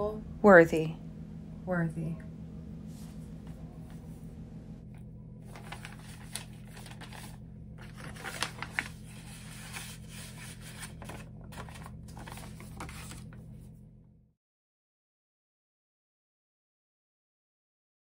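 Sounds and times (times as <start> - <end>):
low hum: 0.0 - 14.3
paper rustling and crinkling: 5.4 - 13.5.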